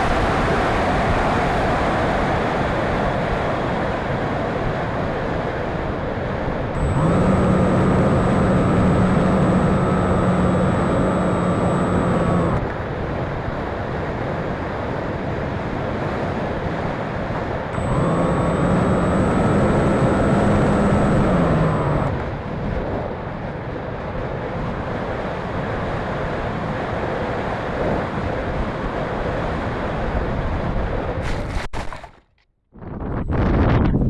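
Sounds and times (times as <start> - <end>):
electric motor and propeller whining: 5.1 - 13.3, 16.2 - 30.0.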